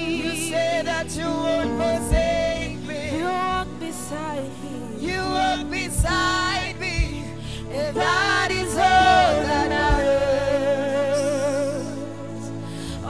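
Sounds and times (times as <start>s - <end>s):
instrumental backing: 0.0s - 13.0s
person singing with vibrato: 0.0s - 13.0s
backing singers: 4.9s - 12.6s.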